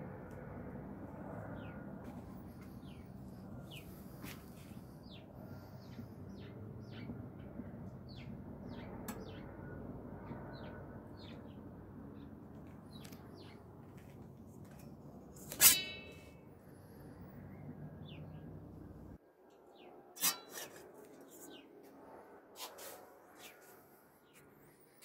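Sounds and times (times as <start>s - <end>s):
small birds chirping: 1.6s - 9.6s, 10.2s - 14.0s.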